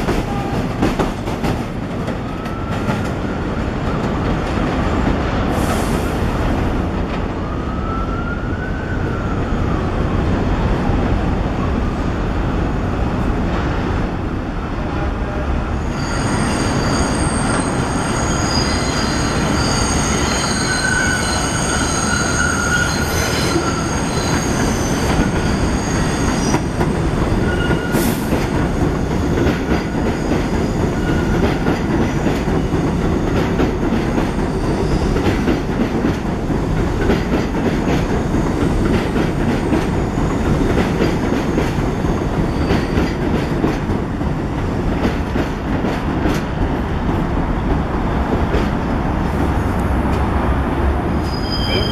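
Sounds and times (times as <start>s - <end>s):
train wheels squealing: 15.6s - 26.8s, 27.4s - 31.6s, 34.3s - 35.4s, 41.5s - 43.2s, 51.2s - 51.9s.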